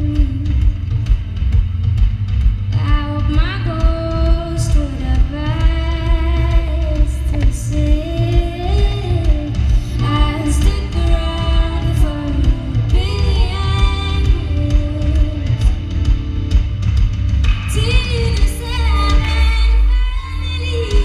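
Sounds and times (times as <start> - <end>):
live band music: 0.0 - 21.0
strong constant bass: 0.0 - 21.0.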